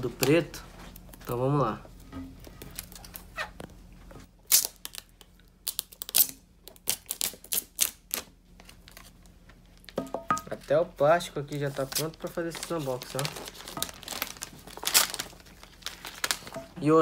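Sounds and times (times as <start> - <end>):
plastic shrink-wrap crinkling: 10.6 - 17.0.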